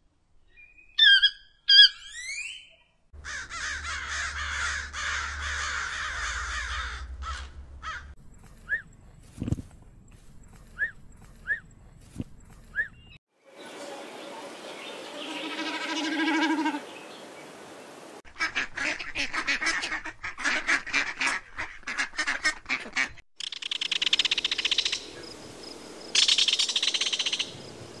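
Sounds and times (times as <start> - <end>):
mallard quacking: 18.3 - 23.2
snipe pulsed call: 23.4 - 25.3, 26.2 - 27.5
kingfisher high trilling calls: 26.2 - 27.5.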